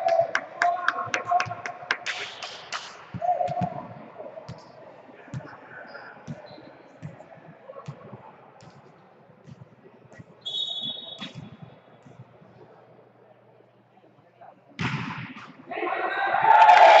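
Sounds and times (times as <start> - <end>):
shoe squeaks: 5.8 - 6.9, 10.4 - 11.7.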